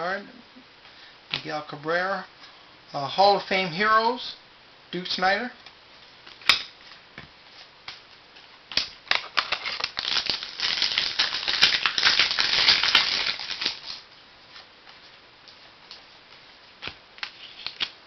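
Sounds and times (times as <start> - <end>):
cards crackling rapidly: 8.7 - 14.0.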